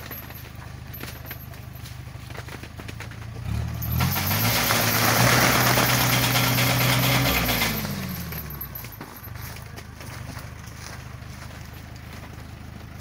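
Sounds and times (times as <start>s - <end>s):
branches shaking and nuts falling: 0.0s - 13.0s
tractor engine revving: 0.0s - 13.0s.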